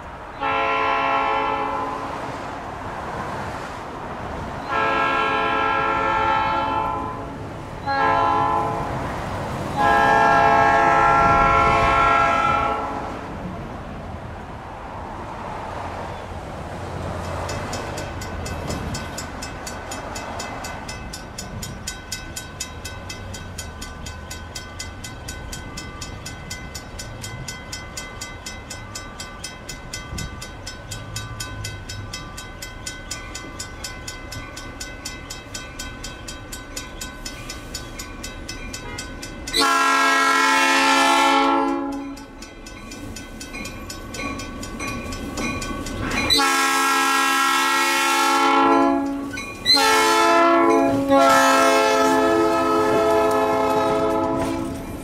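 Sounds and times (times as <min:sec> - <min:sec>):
diesel locomotive rumble: 0:00.0 - 0:55.0
locomotive air horn blasts: 0:00.4 - 0:02.3, 0:04.7 - 0:09.0, 0:09.8 - 0:13.3, 0:39.6 - 0:42.2, 0:46.3 - 0:54.8
crossing bell ringing: 0:04.6 - 0:13.1, 0:16.8 - 0:55.0.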